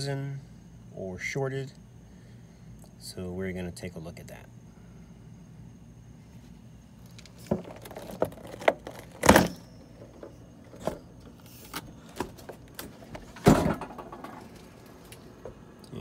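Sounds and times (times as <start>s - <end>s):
refrigerator doors clicking and knocking: 7.4s - 11.2s, 12.1s - 14.6s.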